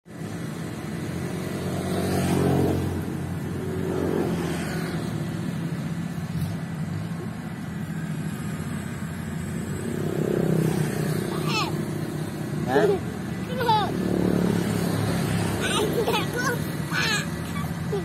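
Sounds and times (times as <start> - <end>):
combine harvester engine running: 5.3 - 10.0.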